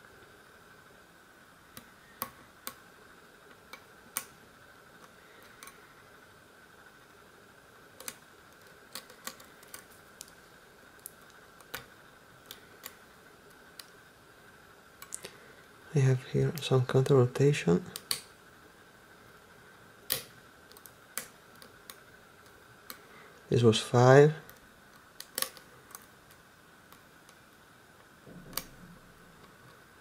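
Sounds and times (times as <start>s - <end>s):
faint steady hum: 0.0s - 30.0s
lock pick metallic clicks: 25.2s - 26.1s.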